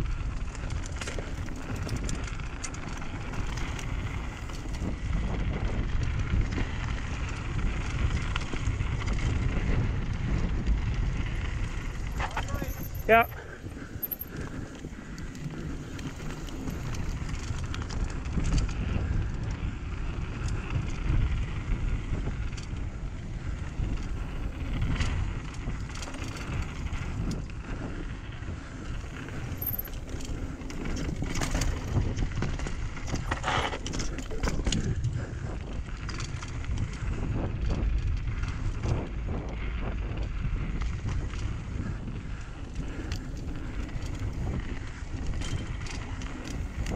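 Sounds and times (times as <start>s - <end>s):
bike clicks and rattles: 0.0s - 46.9s
wind on microphone: 0.0s - 46.9s
tyres rolling over dirt and stones: 10.8s - 18.3s, 28.3s - 35.2s.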